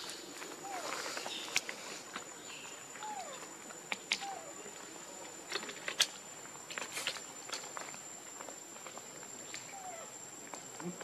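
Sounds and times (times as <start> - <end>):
high insect drone: 0.0 - 11.0.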